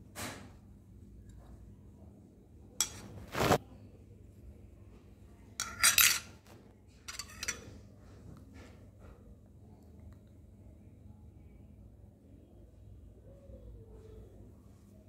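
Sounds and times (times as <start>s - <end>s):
metal spoon scraping a bowl: 2.8s - 3.6s, 5.6s - 6.4s, 7.1s - 7.8s.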